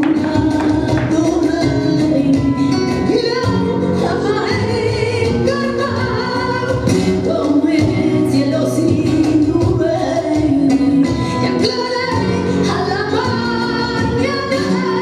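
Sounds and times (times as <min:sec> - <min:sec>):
guitar accompaniment: 0:00.0 - 0:15.0
person singing flamenco: 0:00.0 - 0:15.0.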